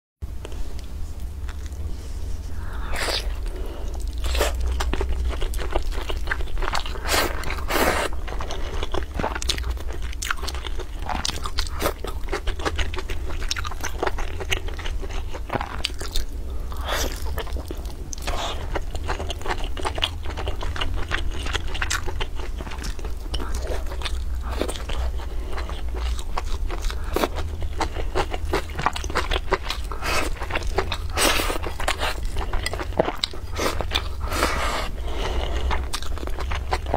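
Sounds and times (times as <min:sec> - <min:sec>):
person chewing: 0:00.4 - 0:01.9, 0:02.5 - 0:36.9.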